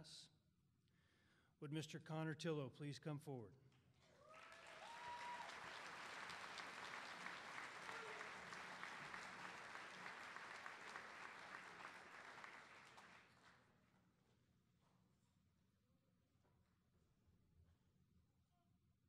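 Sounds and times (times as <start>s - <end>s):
audience applauding: 4.1s - 13.6s.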